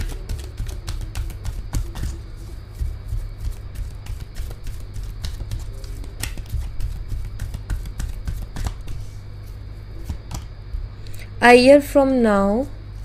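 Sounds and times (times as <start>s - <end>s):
cards being shuffled: 0.0s - 10.5s.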